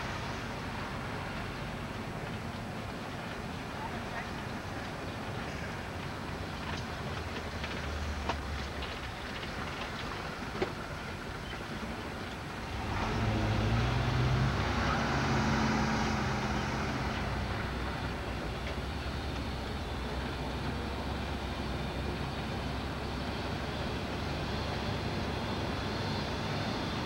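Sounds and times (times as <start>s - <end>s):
tyre road noise: 0.0s - 27.0s
car engine accelerating: 12.7s - 21.4s.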